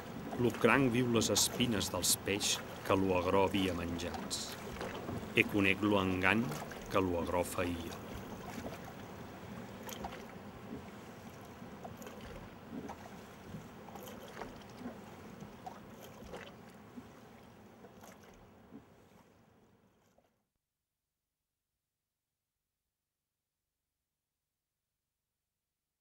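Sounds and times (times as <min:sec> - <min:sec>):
sea water lapping and splashing: 0:00.0 - 0:20.4.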